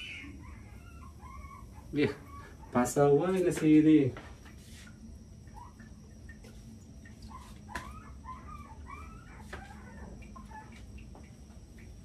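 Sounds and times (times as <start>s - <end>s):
small birds chirping: 0.0s - 3.7s
low steady hum: 0.0s - 12.0s.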